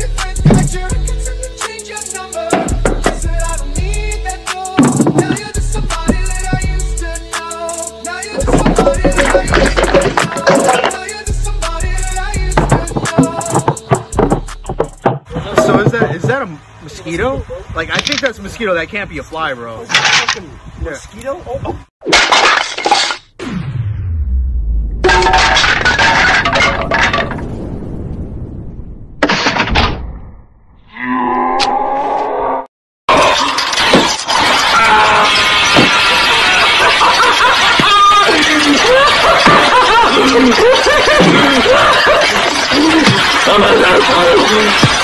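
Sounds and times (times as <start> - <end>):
glass breaking with clinking debris: 8.4 - 11.0, 22.1 - 23.3, 25.0 - 27.5, 33.2 - 40.8
low tone falling in pitch: 23.4 - 25.0
snickering laughter: 36.1 - 45.0.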